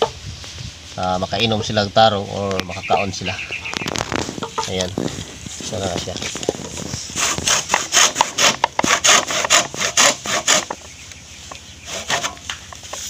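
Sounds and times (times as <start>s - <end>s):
hand saw cutting bamboo: 7.1s - 10.8s, 11.8s - 13.0s.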